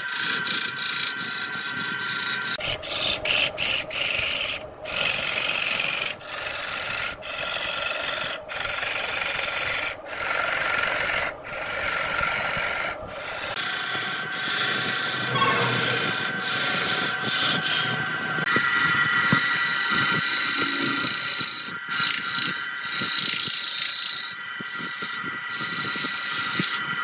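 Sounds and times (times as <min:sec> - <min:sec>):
lathe tool cutting wood: 0:00.0 - 0:17.9, 0:18.5 - 0:27.0.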